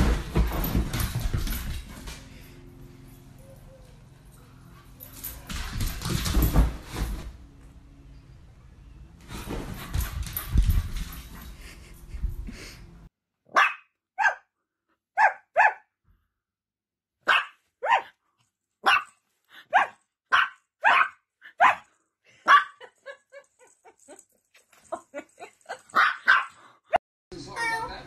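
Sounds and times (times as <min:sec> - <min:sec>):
small dog barking: 0:13.5 - 0:14.5, 0:15.2 - 0:15.8, 0:17.3 - 0:18.1, 0:18.8 - 0:21.8, 0:22.4 - 0:22.8, 0:25.9 - 0:26.5.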